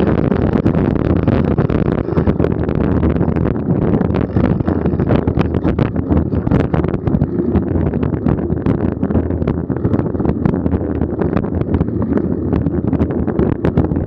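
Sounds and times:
tyres rumbling on dirt trail: 0.0s - 14.0s
wind buffeting microphone: 0.0s - 14.0s.

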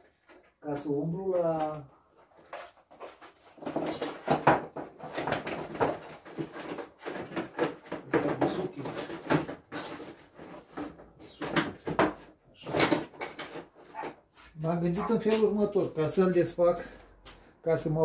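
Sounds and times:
objects knocking and rattling: 0.0s - 0.6s, 1.3s - 14.3s.

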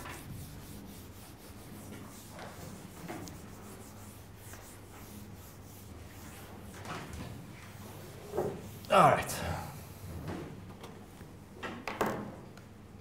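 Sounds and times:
eraser wiping whiteboard: 0.0s - 10.3s.

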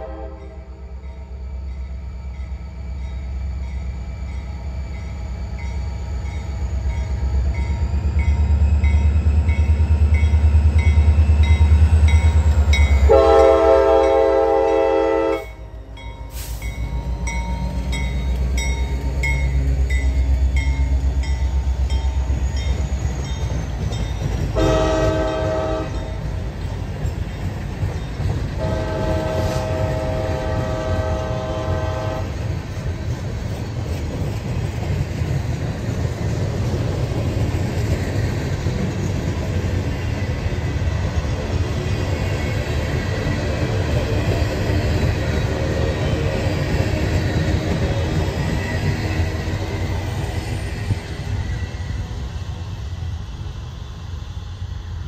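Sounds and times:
locomotive horn blasts: 0.0s - 0.7s, 13.1s - 15.6s, 24.6s - 26.2s, 28.6s - 32.4s.

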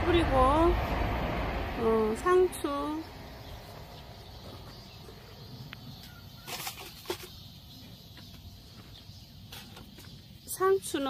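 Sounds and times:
low rumble: 0.0s - 6.1s.

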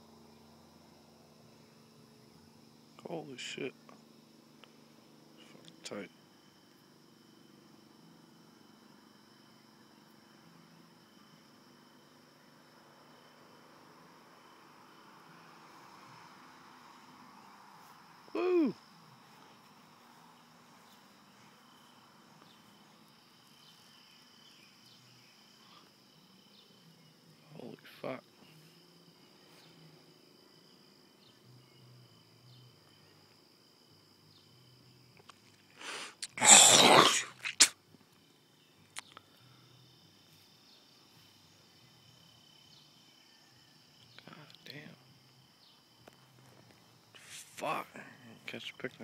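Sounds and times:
crickets trilling: 0.0s - 49.0s
breathy burst of noise: 35.8s - 37.8s.

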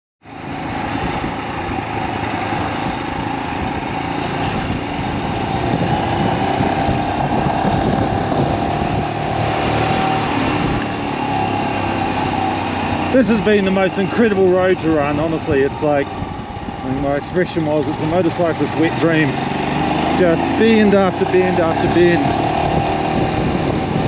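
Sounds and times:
motorcycle engine running: 0.2s - 24.0s
wind noise: 0.4s - 24.0s.

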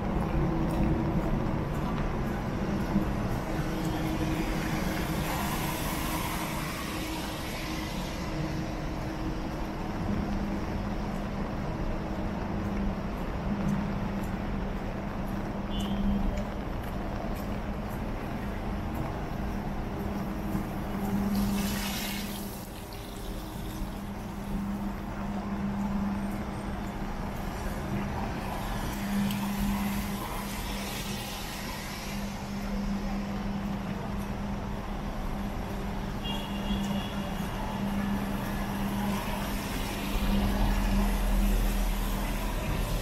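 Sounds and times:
traffic passing on wet road: 0.0s - 43.0s.

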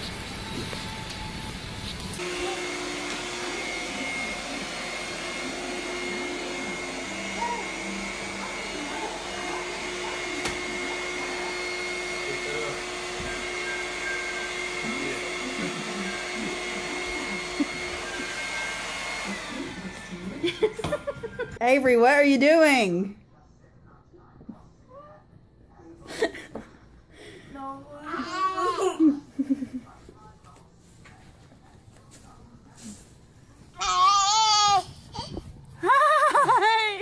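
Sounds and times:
vacuum cleaner running: 0.0s - 21.8s, 35.8s - 37.0s.

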